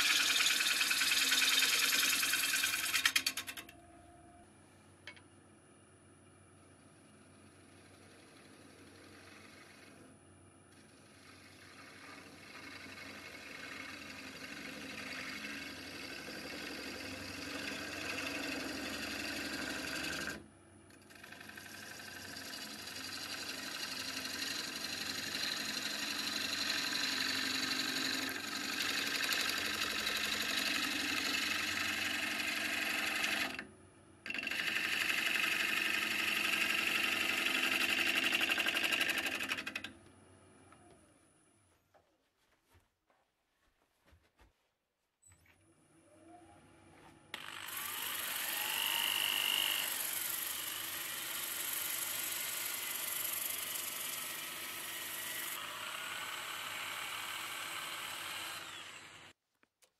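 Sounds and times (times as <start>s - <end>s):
lathe tool cutting wood: 0.0s - 3.5s, 7.6s - 10.1s, 10.8s - 20.4s, 21.1s - 33.7s, 34.3s - 40.0s, 47.3s - 59.4s.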